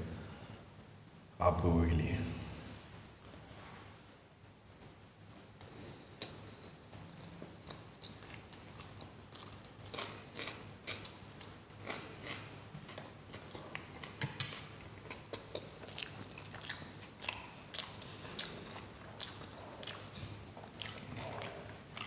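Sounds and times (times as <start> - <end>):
wet chewing crunches: 7.6 - 22.0.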